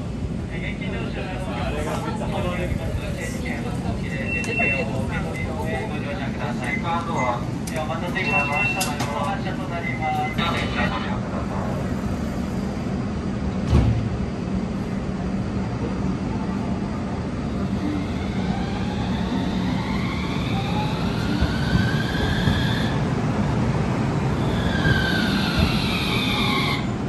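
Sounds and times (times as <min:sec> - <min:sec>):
tram humming: 0:00.0 - 0:27.0
thump: 0:13.6 - 0:14.1.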